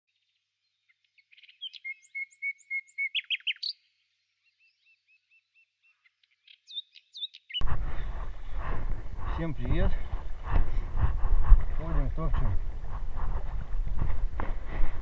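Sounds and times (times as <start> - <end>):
songbird singing: 0.1 - 10.5
low rumbling outdoor noise: 7.6 - 15.0.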